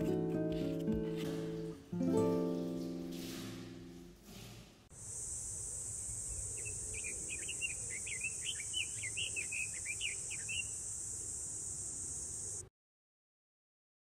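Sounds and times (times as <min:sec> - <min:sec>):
insects droning: 0:04.9 - 0:12.7
bird chirping: 0:06.1 - 0:12.6.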